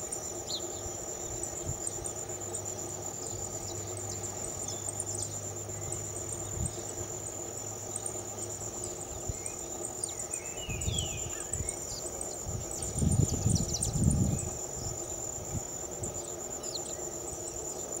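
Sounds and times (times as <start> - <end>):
insects trilling: 0.0 - 18.0
faint bird chirps: 7.8 - 15.2.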